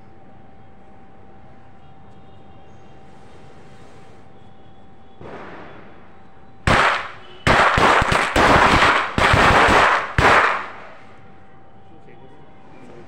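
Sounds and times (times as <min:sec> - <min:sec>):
firecracker cracks and bangs: 0:05.2 - 0:11.0.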